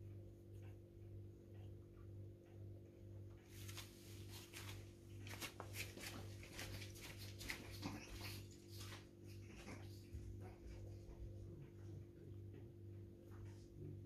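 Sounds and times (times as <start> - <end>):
puppies scuffling and scratching: 3.3 - 12.7.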